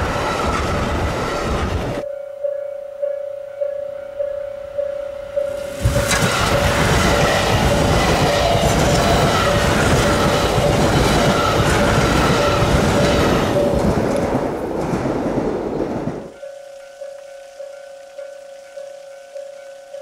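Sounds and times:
high-speed train passing: 0.0s - 2.0s, 5.3s - 16.4s.

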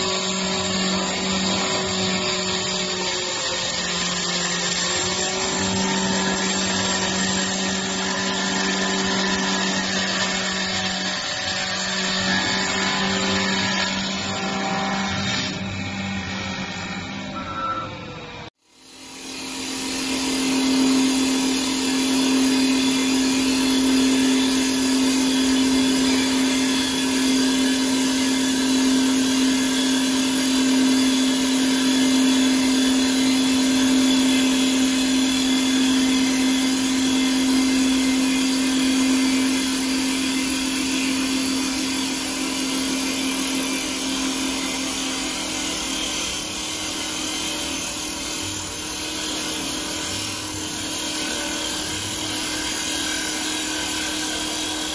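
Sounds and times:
wood lathe running: 18.7s - 54.9s.

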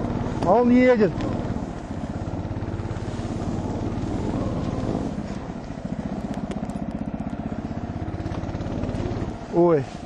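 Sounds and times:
snowmobile engine running: 0.0s - 10.0s.

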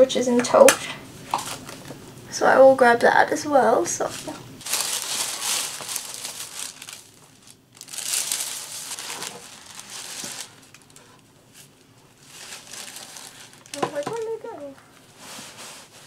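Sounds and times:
packaging rustling and crinkling: 4.0s - 16.0s.

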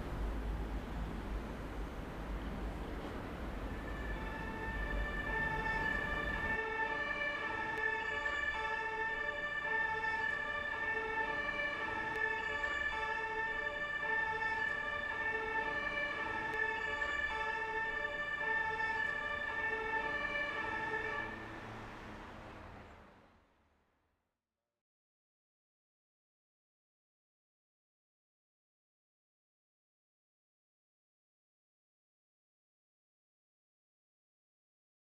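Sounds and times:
outdoor background noise: 0.0s - 24.1s
two-tone emergency siren: 3.5s - 22.4s.

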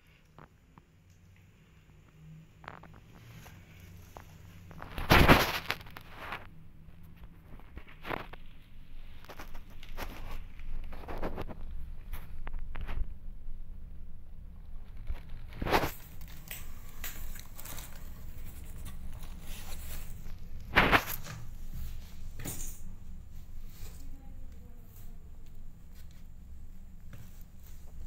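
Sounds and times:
scratchy rustles: 2.6s - 6.5s, 7.3s - 13.1s, 14.8s - 25.2s
low steady rumble: 6.1s - 28.0s.

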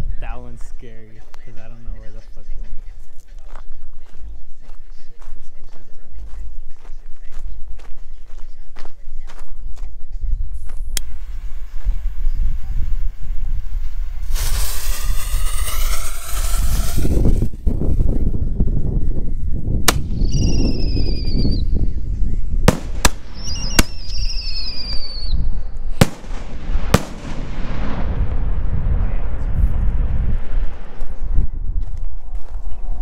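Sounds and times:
loud firework bangs: 14.0s - 17.5s, 22.6s - 25.3s, 25.9s - 31.4s
firework whistle climbing in pitch: 14.2s - 17.2s, 20.1s - 21.6s, 23.4s - 25.4s
warbling high whistles: 20.1s - 21.6s, 23.4s - 25.5s.

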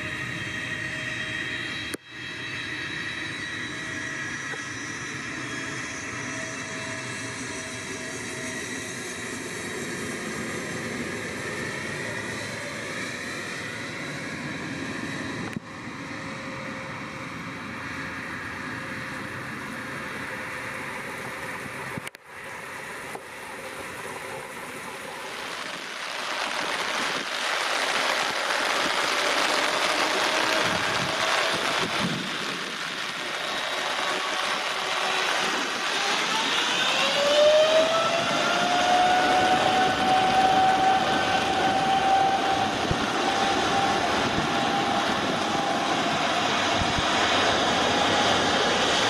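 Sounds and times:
jet engines whining: 0.0s - 49.0s
rain and spray hissing: 24.9s - 36.1s
loud rushing noise: 25.2s - 49.0s.

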